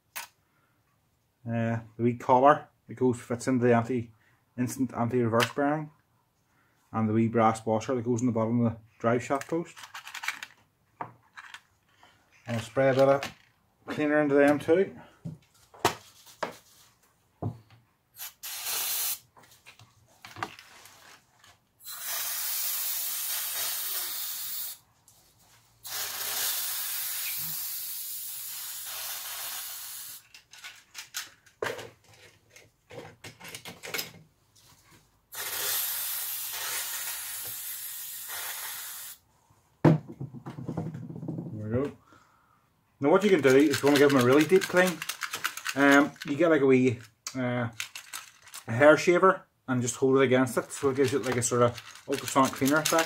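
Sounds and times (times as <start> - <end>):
aerosol can spraying: 18.2 - 19.2, 21.9 - 24.8, 25.8 - 30.2, 35.3 - 39.2.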